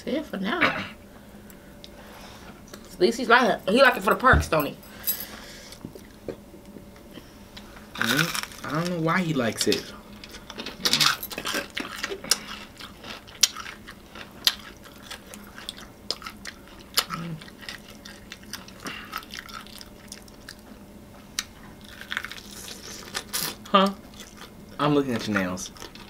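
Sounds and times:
chewing: 0:10.2 - 0:20.8, 0:21.4 - 0:24.6, 0:25.2 - 0:26.0.

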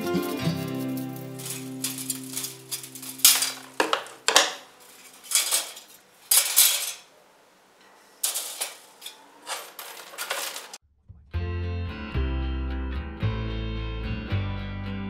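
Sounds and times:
sheet metal vent rattling and scraping: 0:00.3 - 0:07.1, 0:08.2 - 0:10.8.

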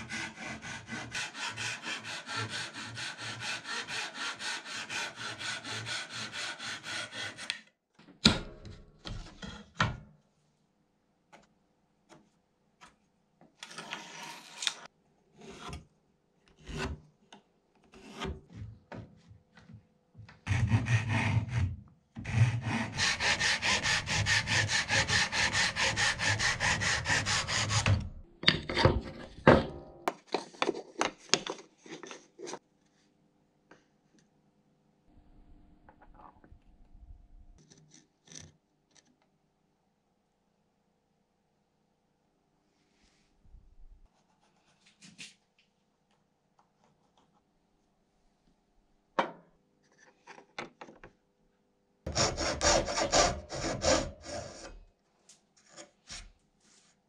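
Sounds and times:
handsaw cutting wood: 0:00.0 - 0:07.6, 0:20.5 - 0:28.1, 0:52.1 - 0:54.8.

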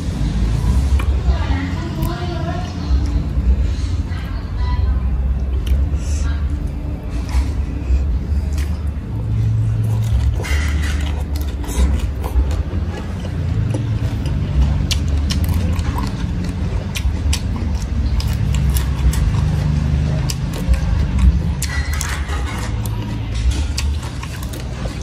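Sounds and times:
steady low rumble: 0:00.0 - 0:25.0
crunchy chewing: 0:07.1 - 0:25.0.

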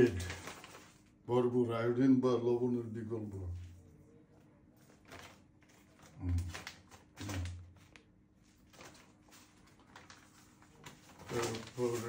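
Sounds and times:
plastic packet rustling: 0:00.0 - 0:01.2, 0:04.8 - 0:12.0.

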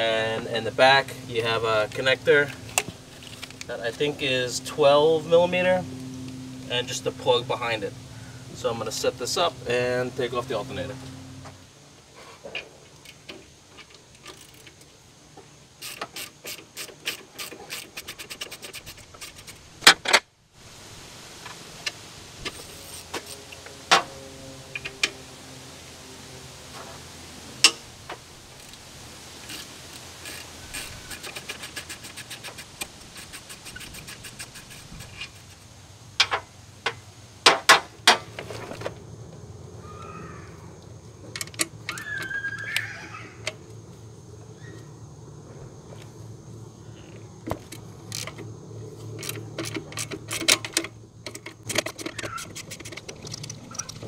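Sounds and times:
socket ratchet clicking: 0:15.8 - 0:19.6.

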